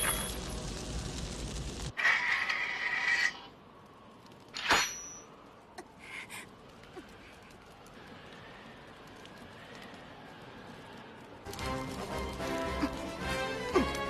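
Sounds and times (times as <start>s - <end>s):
faint clicks: 5.3s - 12.1s.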